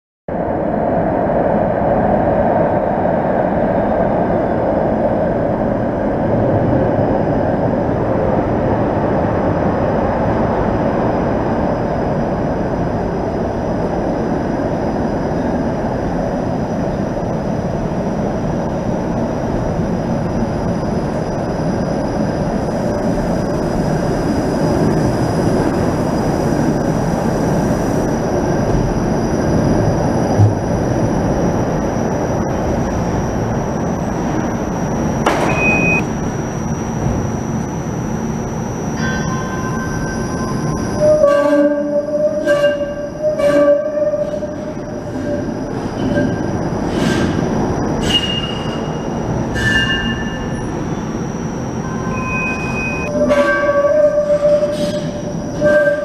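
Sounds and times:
steady rumble: 0.3 - 39.0
streetcar wheels on rails: 0.3 - 56.0.

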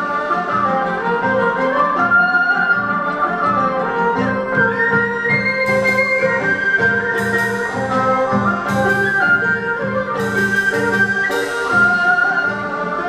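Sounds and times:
bamboo flute melody: 0.0 - 13.0
sharp percussion strikes: 5.5 - 12.6.

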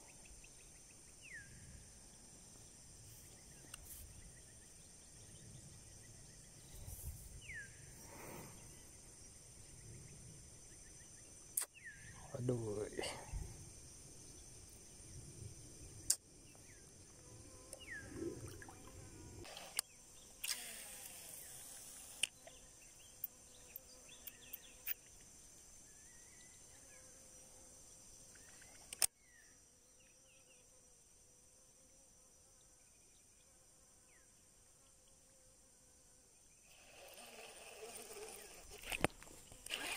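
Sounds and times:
high-pitched insect drone: 16.6 - 27.0, 36.6 - 39.9
fishing reel clicks: 19.5 - 22.4.

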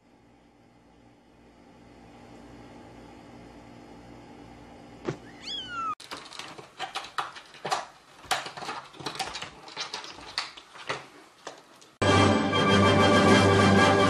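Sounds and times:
cat meowing: 5.2 - 6.0
plastic cat flap rattling: 6.0 - 11.1.

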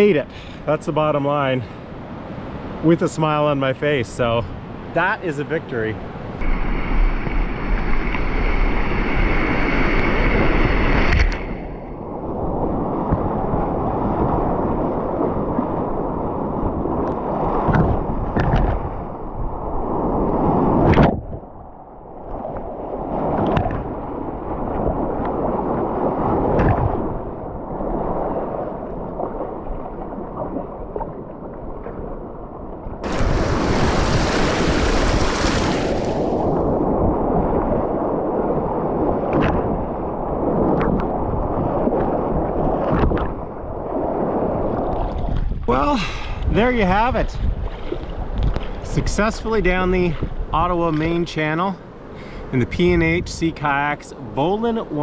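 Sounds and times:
waves breaking over kayak: 0.0 - 55.0
water sloshing against hull: 6.0 - 46.6, 47.3 - 49.2
whitewater rapids rushing: 33.0 - 36.2.

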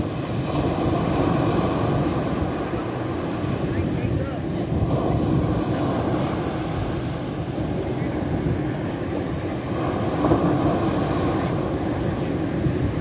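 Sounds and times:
waves breaking on pebbly beach: 0.0 - 13.0
wind noise on microphone: 0.0 - 13.0.

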